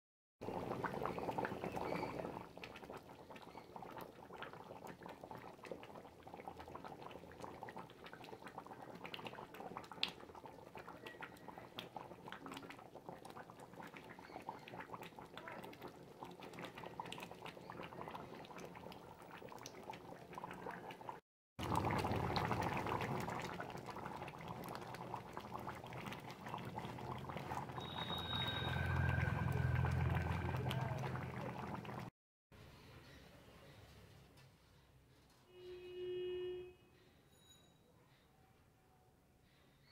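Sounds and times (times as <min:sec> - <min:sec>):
curry bubbling in a pan: 0:00.4 - 0:32.1.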